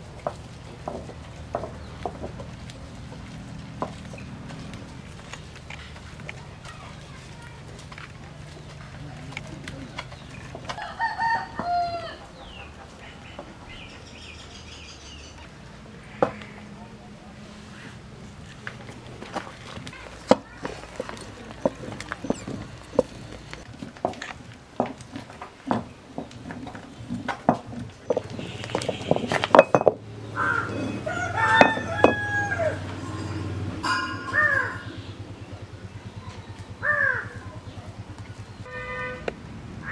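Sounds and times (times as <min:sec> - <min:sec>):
small birds chirping: 0:00.5 - 0:10.6, 0:11.6 - 0:23.7, 0:34.4 - 0:38.7
rooster crowing: 0:10.7 - 0:12.4, 0:30.4 - 0:33.0.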